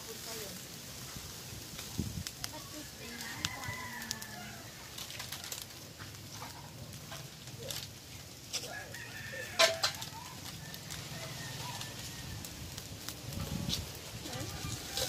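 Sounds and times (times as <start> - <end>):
rooster crowing: 2.7 - 5.0, 8.6 - 12.8
chickens clucking: 4.8 - 7.8, 8.8 - 12.1.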